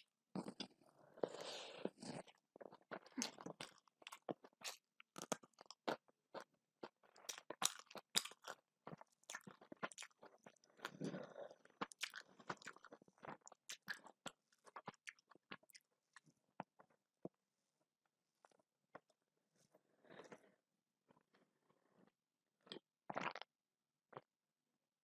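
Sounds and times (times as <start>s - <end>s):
person chewing crunchy food: 0.4s - 16.9s.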